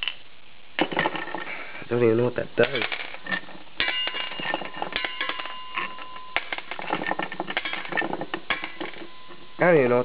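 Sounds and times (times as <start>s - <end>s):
metal engine parts clinking: 2.6s - 9.5s
steady high tone: 8.5s - 10.0s.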